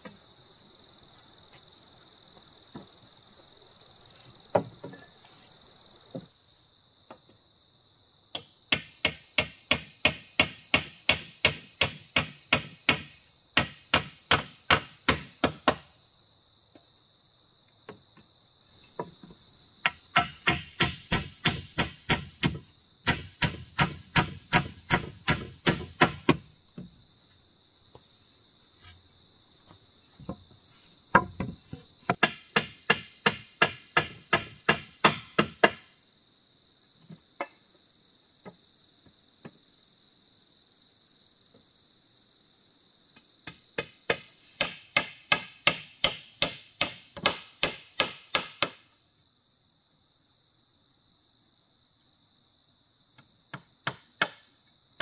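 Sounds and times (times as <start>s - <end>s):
high insect drone: 0.0s - 55.0s
tool striking wood: 8.4s - 15.9s, 19.8s - 26.9s, 31.1s - 35.9s, 43.4s - 48.8s, 53.5s - 54.5s.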